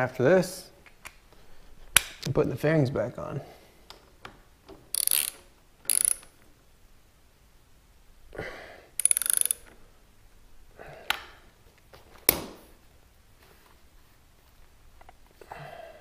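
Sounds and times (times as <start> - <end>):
socket ratchet clicking: 4.9 - 6.4, 9.0 - 9.8.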